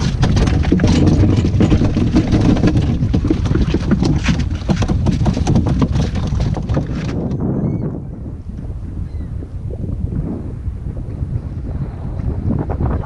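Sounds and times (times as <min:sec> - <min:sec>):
plastic bucket knocking on ice: 0:00.0 - 0:07.4
wind buffeting microphone: 0:00.0 - 0:13.0.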